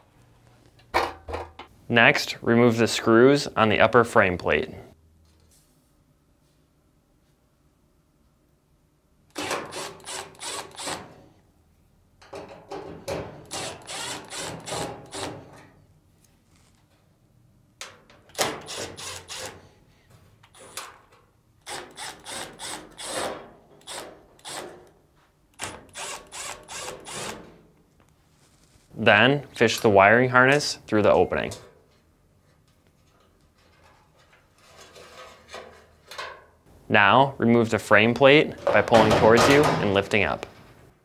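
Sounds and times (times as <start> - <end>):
power screwdriver clicking and whirring: 9.3 - 11.0, 13.5 - 15.3, 25.6 - 27.3.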